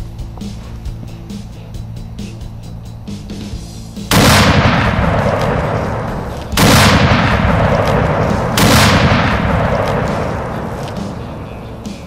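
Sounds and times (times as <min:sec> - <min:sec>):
rifle shots echoing: 0:04.1 - 0:12.0.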